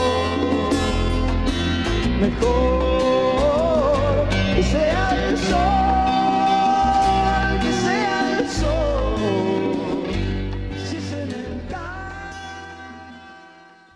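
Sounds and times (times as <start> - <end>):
singing over bass and drums: 0.0 - 13.4.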